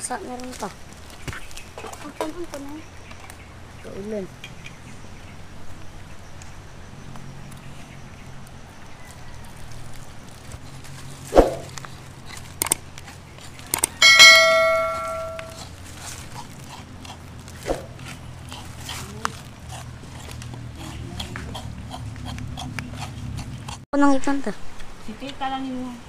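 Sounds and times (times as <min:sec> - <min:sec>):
ringing metallic clang: 0:14.0 - 0:15.6.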